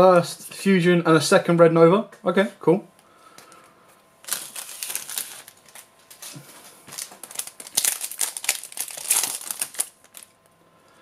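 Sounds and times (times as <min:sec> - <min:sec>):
foil wrapper crinkling and tearing: 0:04.2 - 0:10.4.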